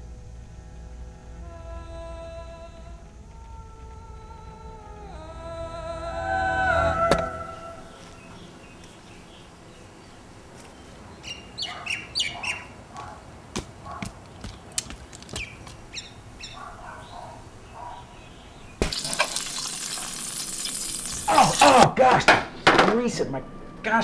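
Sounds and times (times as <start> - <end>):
birds chirping: 3.2 - 21.8
meat sizzling in hot oil: 18.8 - 21.7.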